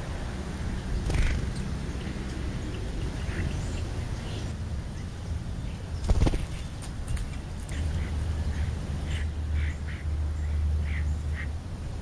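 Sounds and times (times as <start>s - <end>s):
sparrow wings fluttering: 1.0s - 1.5s, 6.0s - 7.4s.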